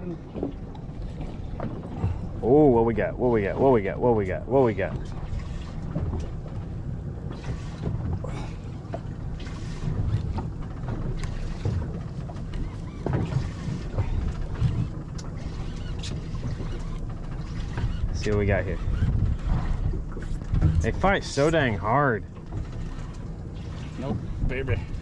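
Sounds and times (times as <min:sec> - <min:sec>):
water against hull: 0:00.0 - 0:25.0
wind on microphone: 0:12.6 - 0:21.8.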